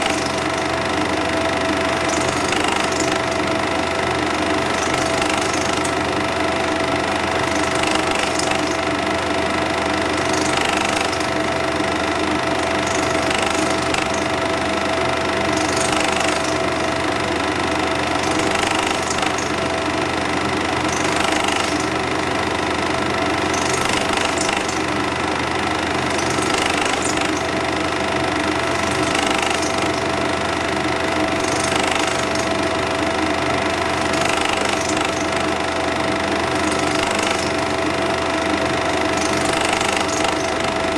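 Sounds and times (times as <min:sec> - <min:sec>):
film projector running: 0:00.0 - 0:40.9.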